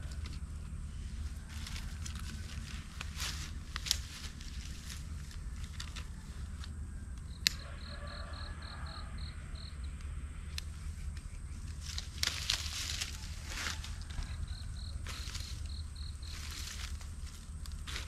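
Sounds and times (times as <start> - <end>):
rustling crunches: 0.0 - 6.8, 11.6 - 18.0
insect chirping pulses: 7.2 - 12.8, 14.2 - 18.0
low rumble: 8.8 - 18.0.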